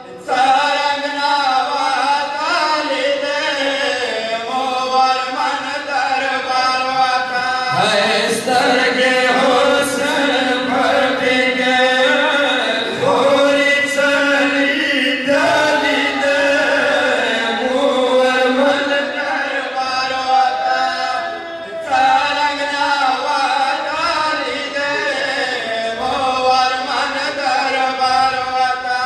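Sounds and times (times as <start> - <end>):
men chanting a lament: 0.0 - 29.0.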